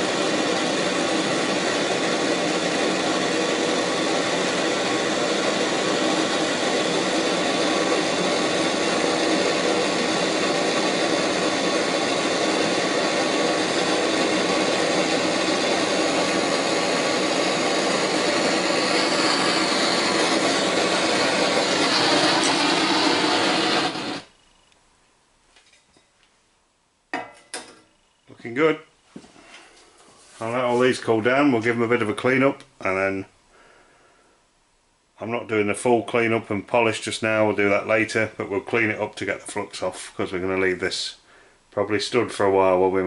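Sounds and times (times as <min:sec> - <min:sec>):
blowtorch flame running: 0:00.0 - 0:24.5.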